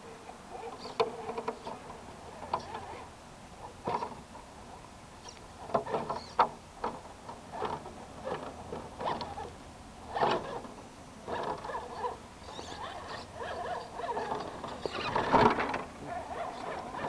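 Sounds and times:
small electric motor whining: 11.3 - 15.6, 16.3 - 17.0.

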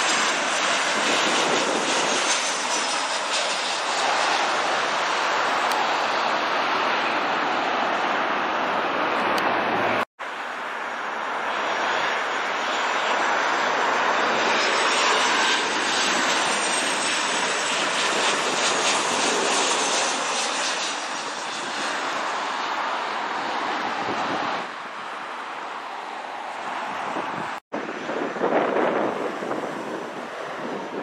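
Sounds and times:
jet airliner passing: 0.0 - 31.0.

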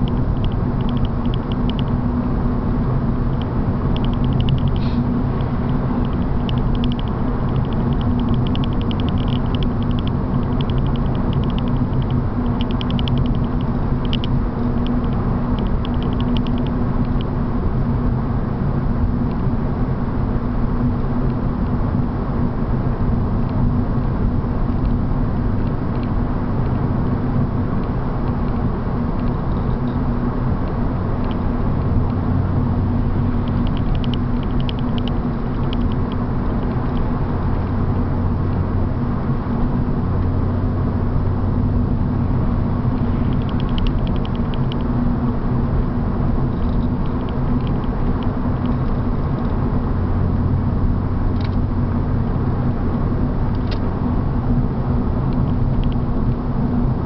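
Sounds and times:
car engine drone: 0.0 - 57.0
tyre and road noise: 0.0 - 57.0
light ticking: 3.3 - 4.8, 5.4 - 17.3, 33.3 - 37.2.

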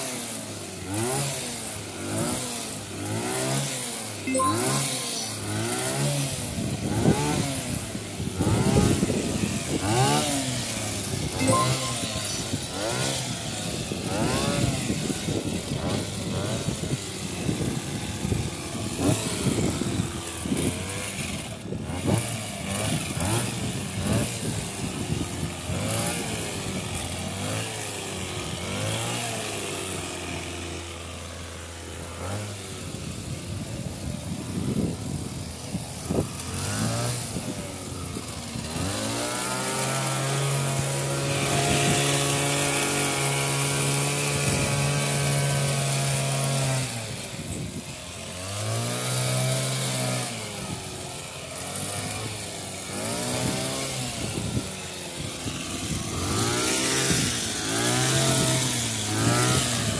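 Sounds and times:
hedge trimmer engine revving: 0.0 - 59.9.

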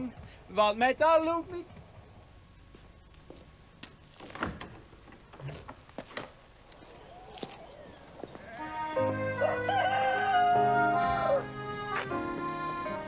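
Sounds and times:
farm animal bleating: 8.2 - 13.0
music with long held notes: 8.6 - 13.0.

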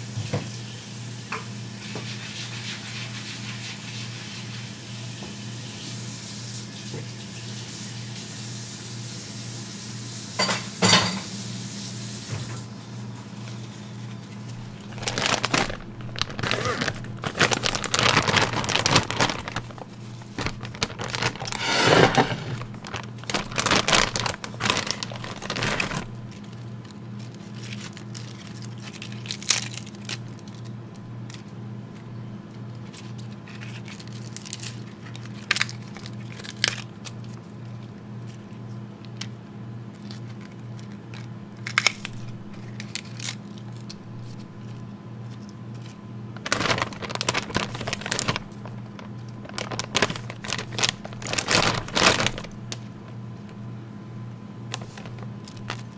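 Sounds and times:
steady low hum: 14.0 - 28.4, 36.9 - 55.9
plastic bag crinkling: 14.4 - 30.7, 32.7 - 38.6, 39.9 - 53.6, 54.7 - 55.9.

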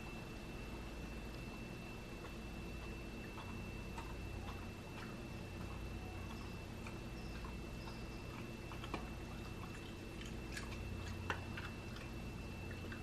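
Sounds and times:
steady low hum: 0.0 - 13.0
dog crunching ice: 2.8 - 13.0.

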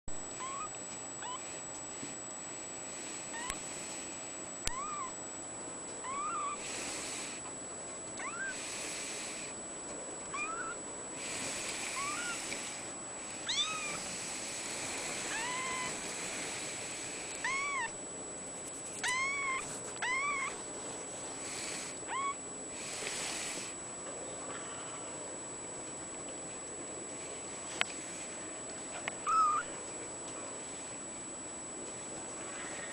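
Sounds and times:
kitten mewing: 0.4 - 1.4, 3.3 - 3.7, 4.7 - 5.2, 6.0 - 6.7, 8.2 - 8.6, 10.3 - 10.8, 11.9 - 12.6, 13.4 - 14.1, 15.2 - 16.1, 17.4 - 18.0, 19.0 - 20.6, 22.0 - 22.4, 29.2 - 29.8.

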